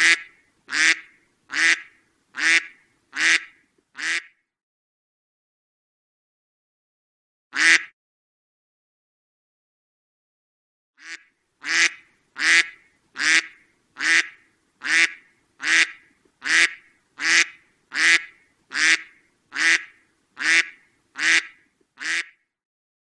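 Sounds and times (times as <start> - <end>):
duck quacking: 0.0 - 4.3, 7.6 - 7.9, 11.0 - 22.4.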